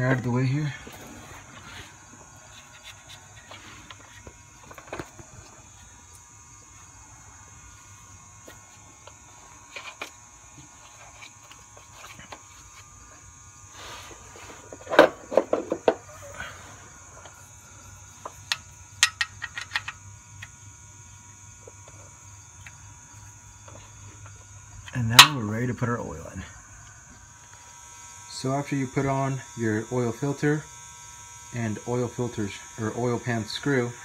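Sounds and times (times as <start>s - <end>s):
crickets chirping: 0.0s - 34.0s
wrench clicking: 18.5s - 20.0s.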